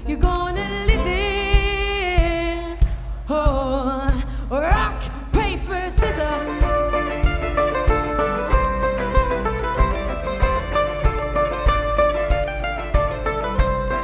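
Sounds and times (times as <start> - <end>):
women singing with vibrato: 0.0 - 6.9
live band playing: 0.0 - 14.0
steady drum beat: 0.0 - 14.0.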